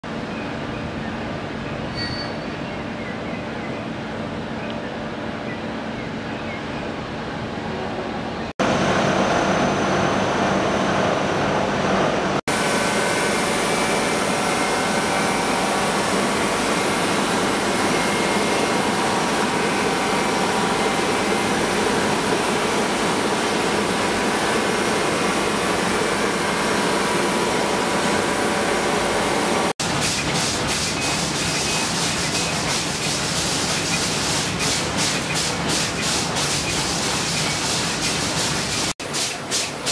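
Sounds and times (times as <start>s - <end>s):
factory machinery din: 8.6s - 39.9s.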